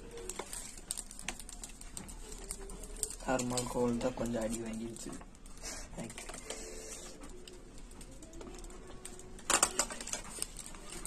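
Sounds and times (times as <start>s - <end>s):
plastic bag and paper crinkling: 0.0s - 11.0s.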